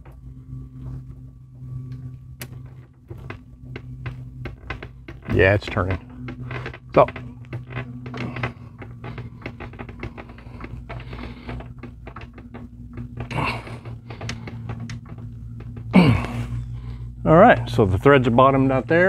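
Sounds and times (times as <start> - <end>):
steady low hum: 0.0 - 19.0
metal strut clicking and scraping: 2.0 - 17.0.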